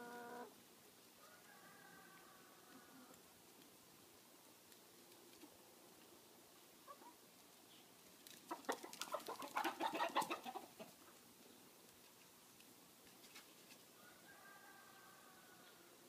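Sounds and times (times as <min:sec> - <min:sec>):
hens clucking and squawking: 0:08.4 - 0:11.2.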